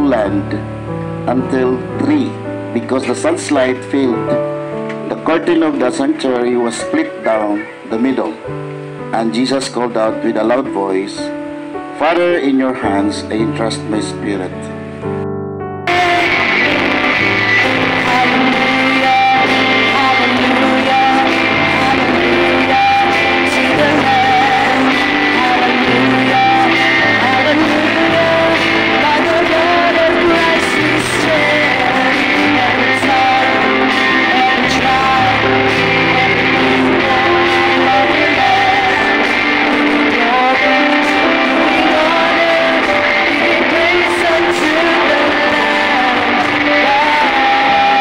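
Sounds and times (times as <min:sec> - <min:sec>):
electric guitar: 0:00.0 - 0:48.0
keyboard: 0:00.0 - 0:48.0
bass guitar: 0:14.3 - 0:48.0
drum kit: 0:15.9 - 0:48.0
voices singing along: 0:15.9 - 0:48.0.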